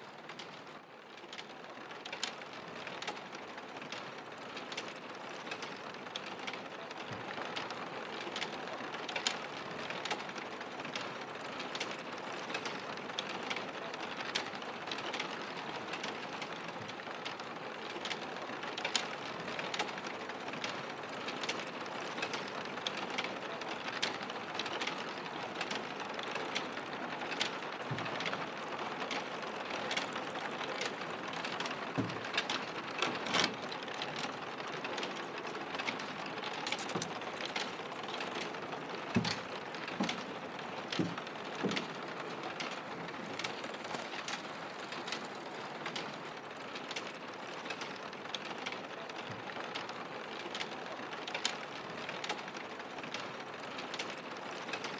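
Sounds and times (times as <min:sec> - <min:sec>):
mechanical clicks and knocks: 0:22.2 - 0:52.4.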